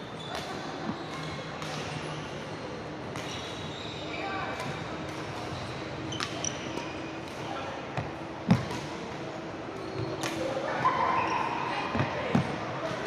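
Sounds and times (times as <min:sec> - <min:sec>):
shoe squeaks: 0:00.0 - 0:04.4, 0:05.4 - 0:07.6, 0:09.7 - 0:12.2.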